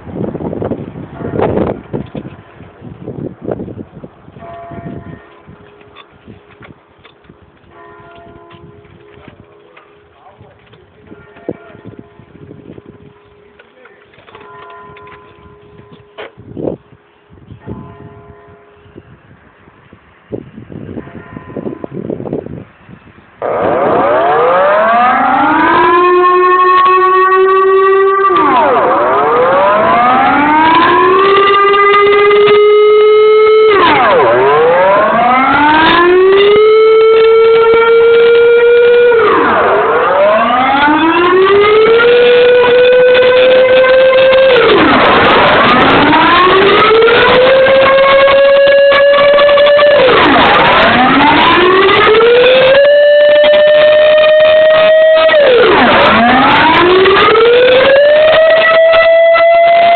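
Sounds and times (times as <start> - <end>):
air-raid siren rising and falling: 23.4 - 59.9.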